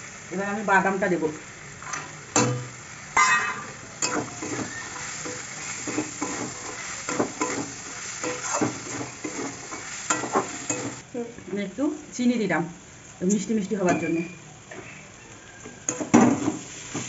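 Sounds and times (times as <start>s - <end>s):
frying sizzle: 0.0s - 17.0s
metal spatula scraping a wok: 1.8s - 11.0s.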